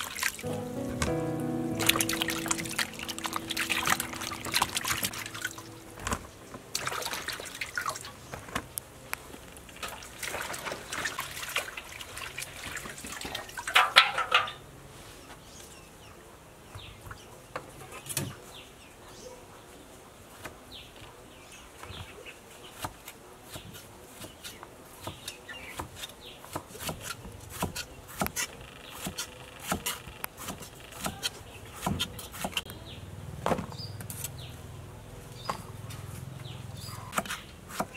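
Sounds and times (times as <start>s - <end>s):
hands splashing in water basin: 6.7s - 8.1s, 9.8s - 13.7s.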